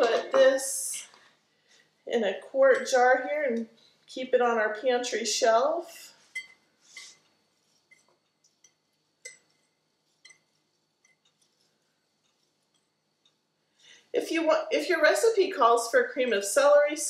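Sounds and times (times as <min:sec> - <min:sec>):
metal utensil clinking on glass bowl: 0:02.7 - 0:03.0, 0:06.3 - 0:07.2, 0:07.9 - 0:11.3.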